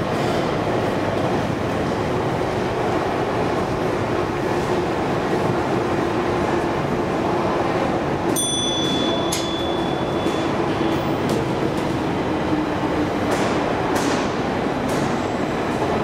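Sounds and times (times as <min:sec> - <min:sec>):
metro station rumble: 0:00.0 - 0:16.0
high elevator chime: 0:08.4 - 0:11.2.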